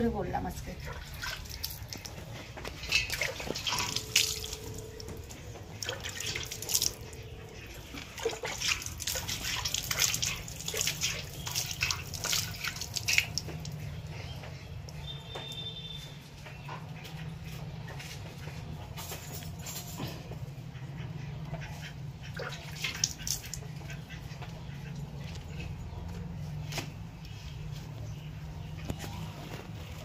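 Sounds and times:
water splashing in metal bucket: 0.8s - 15.9s, 22.2s - 24.0s.

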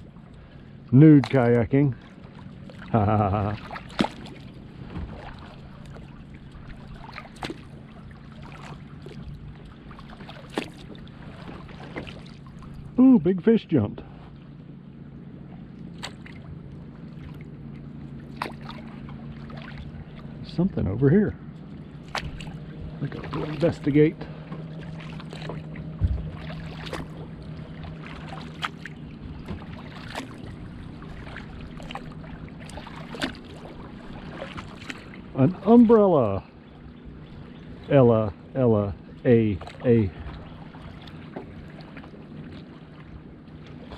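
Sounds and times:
kayak paddle strokes: 0.0s - 13.0s, 15.5s - 20.4s, 21.4s - 36.2s, 39.4s - 43.9s
low steady water rush: 0.0s - 43.9s
water dripping off paddle: 21.6s - 35.2s, 39.1s - 42.7s
low thump: 25.9s - 26.4s.

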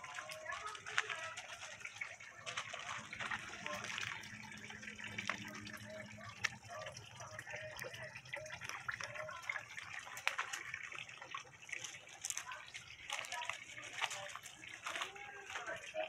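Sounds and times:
water drips and splashes: 0.0s - 16.0s
water trickling over rocks: 0.0s - 16.0s.

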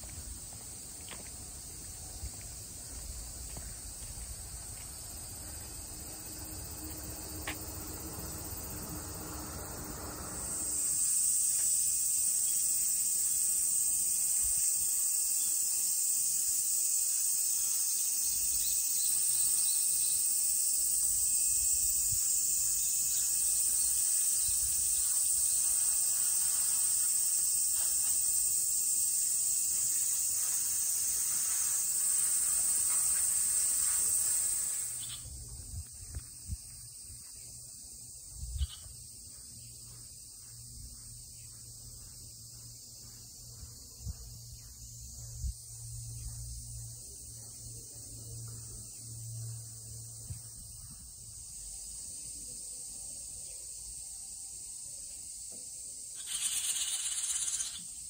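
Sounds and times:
cicadas buzzing: 0.0s - 58.0s
low rumble: 5.0s - 11.0s.

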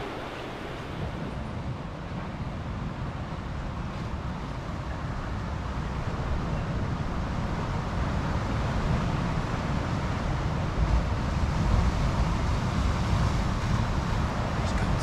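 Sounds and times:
distant ocean surf: 0.0s - 15.0s.

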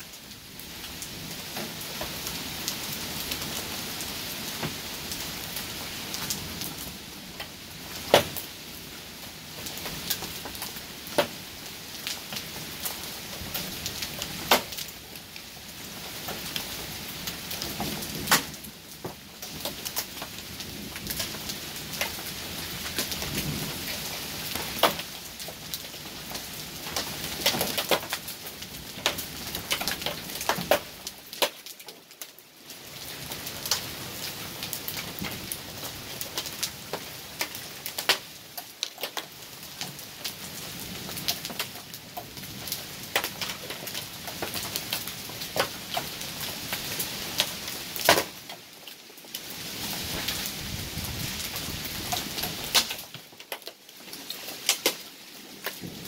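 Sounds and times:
heavy rain rushing: 0.3s - 31.4s, 49.4s - 53.4s, 54.2s - 56.0s
raindrops ticking: 34.8s - 40.4s, 41.1s - 49.4s, 51.4s - 54.0s.

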